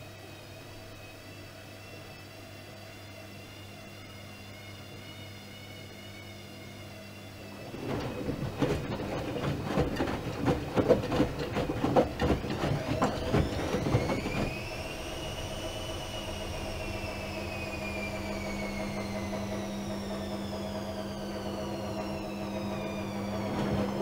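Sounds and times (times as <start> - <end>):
washing machine hum: 0.0 - 24.0
laundry sloshing and thudding in drum: 7.5 - 15.2, 22.0 - 24.0.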